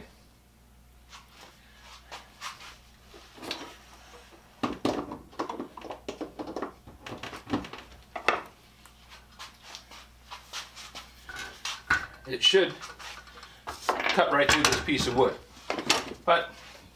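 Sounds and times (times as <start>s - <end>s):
objects knocking and clattering on workbench: 4.6s - 8.5s, 11.3s - 12.2s, 13.7s - 16.2s.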